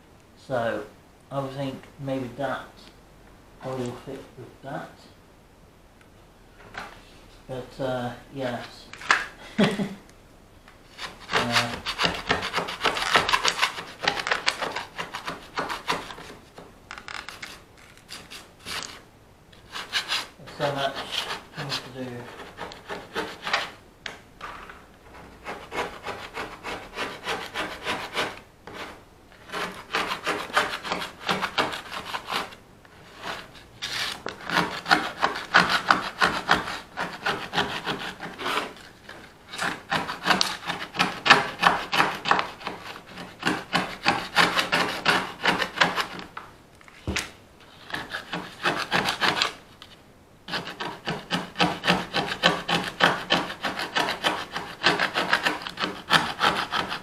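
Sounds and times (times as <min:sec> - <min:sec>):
hand tool scraping: 0:10.9 - 0:19.0, 0:19.6 - 0:23.8, 0:24.4 - 0:46.3, 0:47.7 - 0:49.6, 0:50.5 - 0:57.0.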